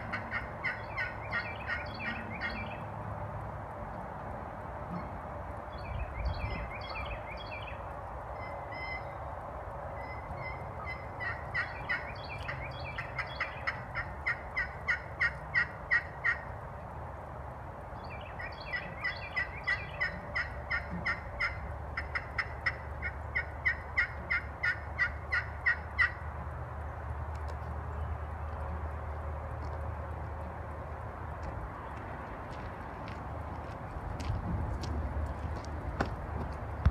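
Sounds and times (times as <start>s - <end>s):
turkey call yelps: 0.1s - 2.7s, 8.4s - 9.2s, 10.0s - 16.4s, 18.4s - 26.2s.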